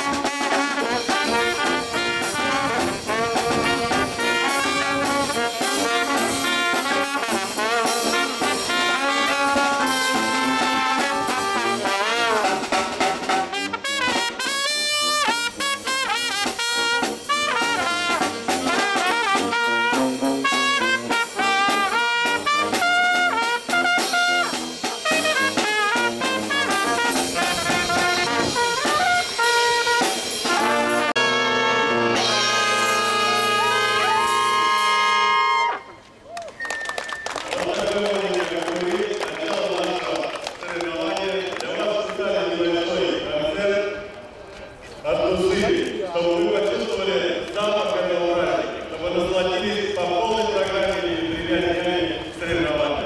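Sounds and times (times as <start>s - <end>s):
snare drum: 0.0s - 31.2s
tuba: 0.0s - 36.0s
trumpet: 0.0s - 36.2s
saxophone: 0.0s - 36.8s.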